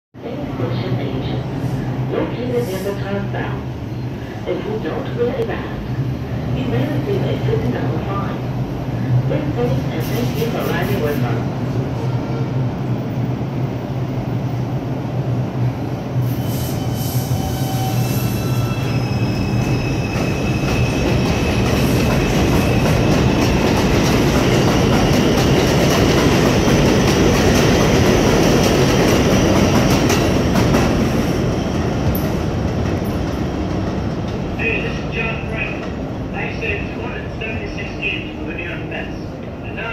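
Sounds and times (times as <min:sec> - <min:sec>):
train wheels rumbling and clacking: 0:16.2 - 0:38.8.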